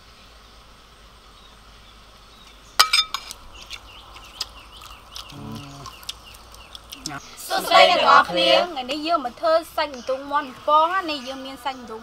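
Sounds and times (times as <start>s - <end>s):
crunchy fried chicken chewing: 3.1s - 7.7s.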